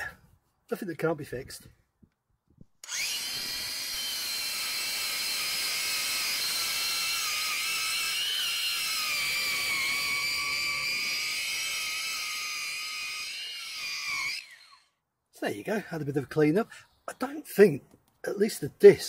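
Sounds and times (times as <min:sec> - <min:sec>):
angle grinder whining on metal: 0:02.8 - 0:15.0.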